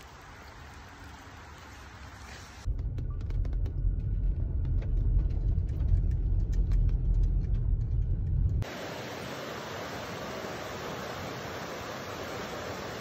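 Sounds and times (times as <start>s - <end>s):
stream pouring over rocks: 0.0s - 2.7s, 8.6s - 13.0s
car interior road rumble: 2.6s - 8.7s.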